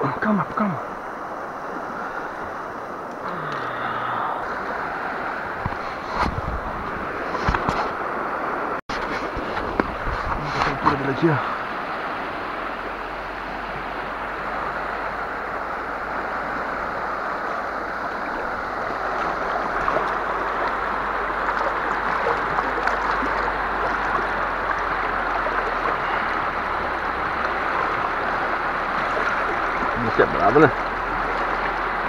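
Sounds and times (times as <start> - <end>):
river rapids rushing: 0.0 - 32.0
fish splashing in shallow water: 8.9 - 32.0.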